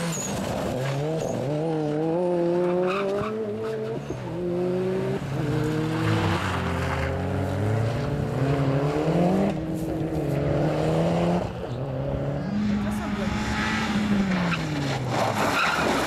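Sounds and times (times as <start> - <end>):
tyres sliding on gravel: 0.0 - 1.9, 5.2 - 8.1, 14.2 - 16.0
rally car engine revving: 0.0 - 16.0.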